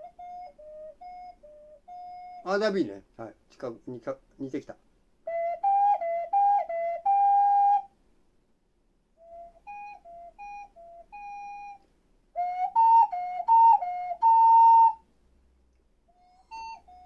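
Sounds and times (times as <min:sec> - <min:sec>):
ocarina playing: 0:00.0 - 0:02.8, 0:05.2 - 0:07.9, 0:09.2 - 0:15.0, 0:16.1 - 0:17.0.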